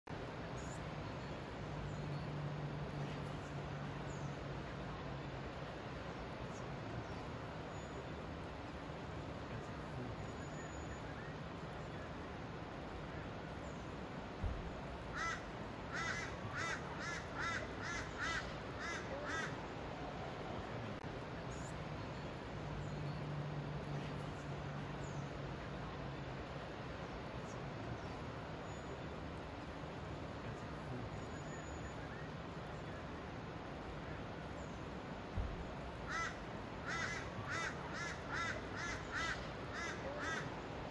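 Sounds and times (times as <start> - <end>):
bird calling: 36.1 - 40.6.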